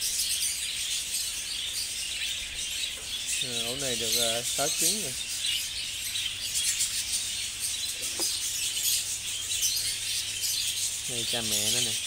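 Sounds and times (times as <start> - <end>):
budgerigars chattering: 0.0 - 12.0.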